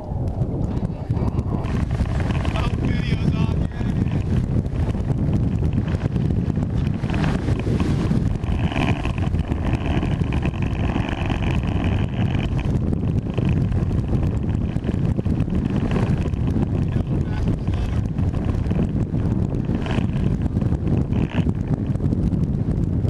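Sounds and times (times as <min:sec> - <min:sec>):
boat motor drone: 0:00.0 - 0:23.0
wind buffeting microphone: 0:00.0 - 0:23.0.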